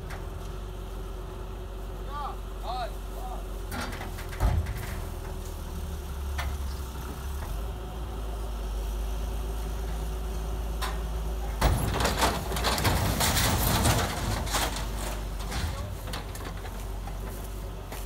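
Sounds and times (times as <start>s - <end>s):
truck crunching and clattering: 0.0s - 0.9s, 3.6s - 8.3s, 9.3s - 18.0s
diesel excavator engine running: 0.0s - 18.0s.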